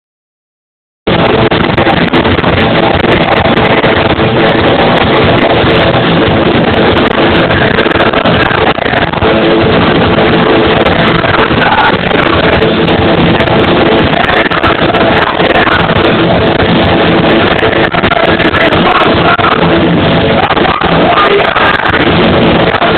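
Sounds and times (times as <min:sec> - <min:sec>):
bass guitar: 0:01.1 - 0:22.9
electric guitar: 0:01.1 - 0:22.9.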